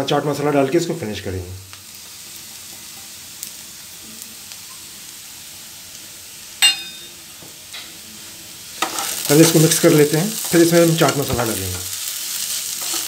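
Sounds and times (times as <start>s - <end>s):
vegetables sizzling in a pan: 0.0s - 13.0s
sharp metallic clink: 6.6s - 7.2s.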